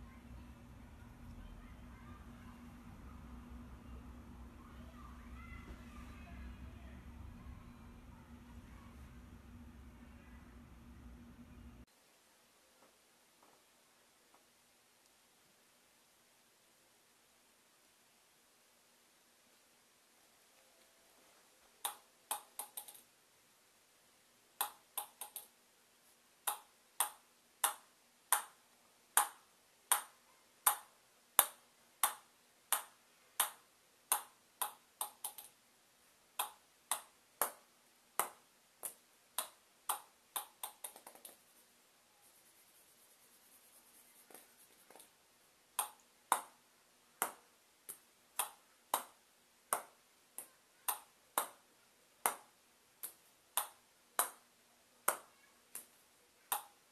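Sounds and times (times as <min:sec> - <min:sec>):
table tennis ball bouncing on paddle: 0:21.8 - 0:23.0, 0:24.6 - 0:25.5, 0:26.5 - 0:28.6, 0:29.2 - 0:35.5, 0:36.4 - 0:37.6, 0:38.2 - 0:41.4, 0:45.8 - 0:46.6, 0:47.2 - 0:51.6, 0:52.2 - 0:54.4, 0:55.1 - 0:55.9, 0:56.5 - 0:56.8.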